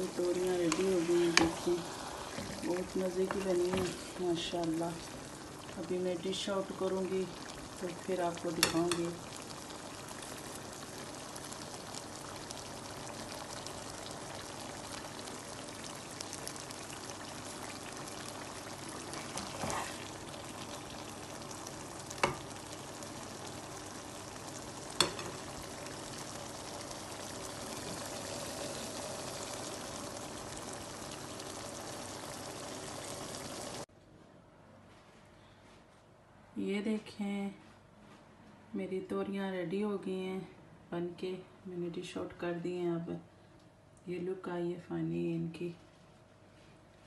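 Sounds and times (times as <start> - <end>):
curry sizzling in oil: 0.0 - 33.9.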